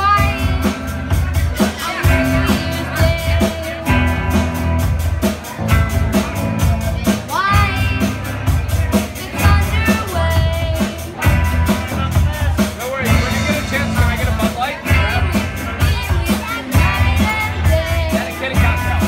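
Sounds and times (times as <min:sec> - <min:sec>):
person singing: 0:00.0 - 0:04.4, 0:14.8 - 0:19.0
drum kit beat: 0:00.0 - 0:19.0
electric bass: 0:00.0 - 0:19.0
electric guitars: 0:00.0 - 0:19.0.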